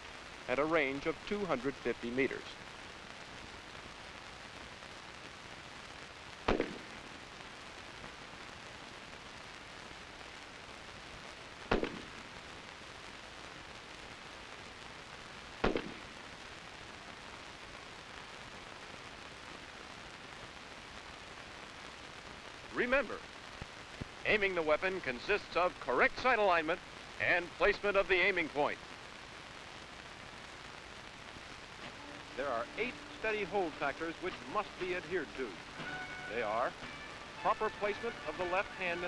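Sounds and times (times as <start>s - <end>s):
film soundtrack hiss: 0.0s - 39.0s
rifle shots: 6.5s - 7.0s, 11.7s - 12.2s, 15.6s - 16.1s.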